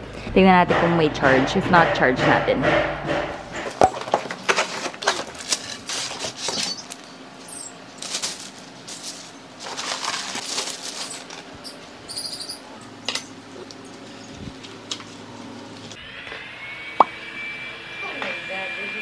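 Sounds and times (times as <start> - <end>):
plastic bag rustling: 4.0 - 7.0, 7.9 - 11.8
polystyrene foam scraping: 8.0 - 11.4.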